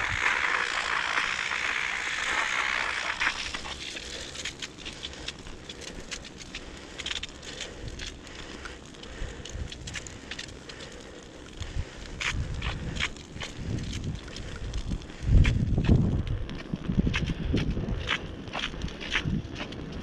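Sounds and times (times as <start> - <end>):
hiss: 0.0 - 4.3
bicycle tyres crunching snow: 0.0 - 20.0.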